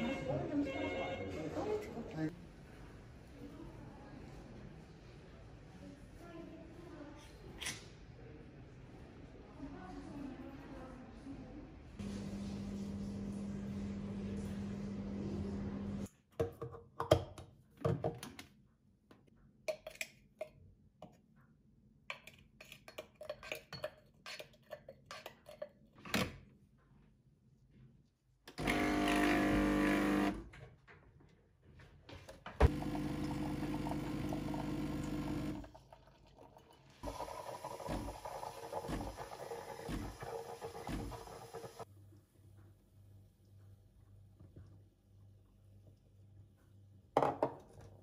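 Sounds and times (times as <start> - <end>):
espresso machine pump buzzing: 28.6 - 30.4, 32.6 - 35.6, 37.0 - 41.8.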